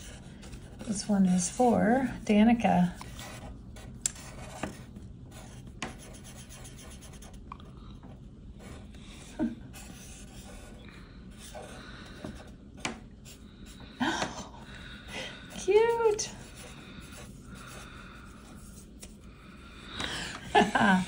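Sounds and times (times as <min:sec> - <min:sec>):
marker scratching on paper: 0:00.0 - 0:02.2, 0:03.0 - 0:07.4, 0:08.6 - 0:10.8, 0:15.5 - 0:19.2.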